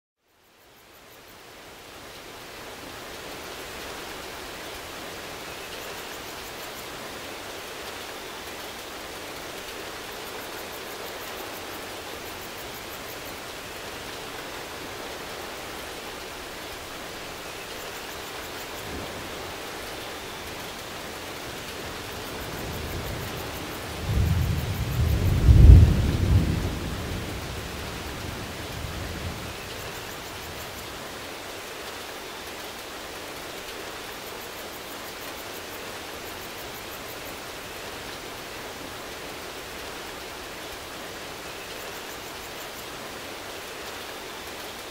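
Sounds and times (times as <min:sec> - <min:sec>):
steady rain falling: 0:00.2 - 0:44.9
low roll of thunder: 0:22.0 - 0:30.6.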